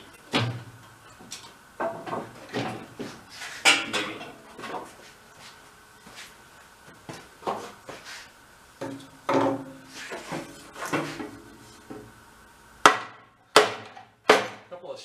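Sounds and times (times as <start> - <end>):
wooden board knocking on sheet metal: 12.8 - 14.6.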